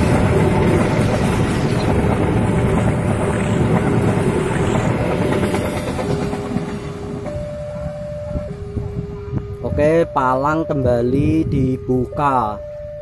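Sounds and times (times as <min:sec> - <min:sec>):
train coaches clattering on rails: 0:00.0 - 0:09.7.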